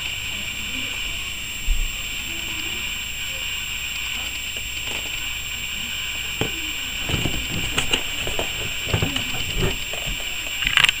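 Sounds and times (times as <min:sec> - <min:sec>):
steady hiss: 0:00.0 - 0:11.0
fingers rubbing on cardboard and plastic: 0:06.3 - 0:10.7
small clicks and scrapes: 0:06.4 - 0:11.0.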